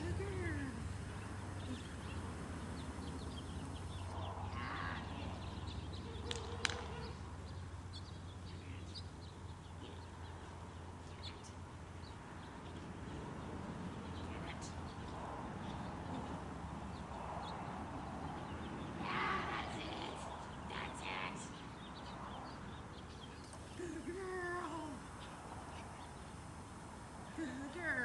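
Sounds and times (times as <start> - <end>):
birds chirping: 0.0 - 28.0
steady low hum: 0.0 - 28.0.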